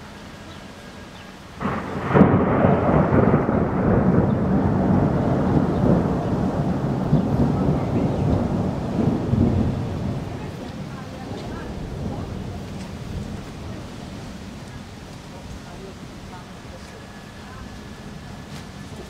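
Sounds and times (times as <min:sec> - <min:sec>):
thunder clap and rumble: 0:01.6 - 0:16.7.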